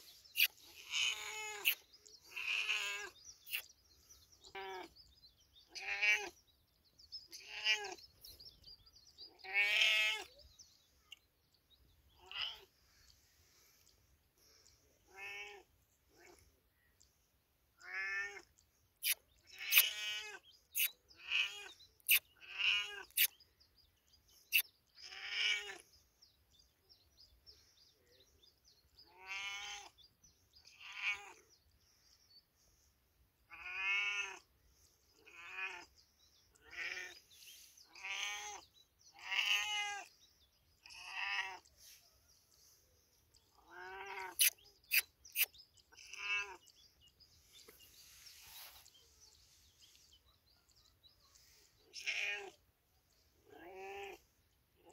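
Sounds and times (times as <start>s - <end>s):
cat meowing: 29.1s - 29.9s, 33.5s - 34.4s, 37.9s - 38.6s, 39.2s - 40.1s, 43.6s - 44.5s.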